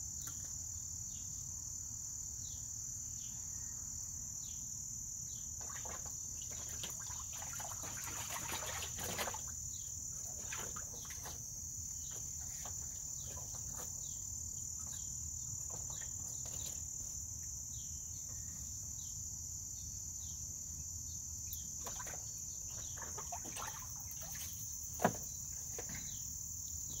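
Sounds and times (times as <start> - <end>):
insect chorus: 0.0 - 27.0
water splashing: 5.6 - 9.6, 10.2 - 11.5, 21.8 - 25.2.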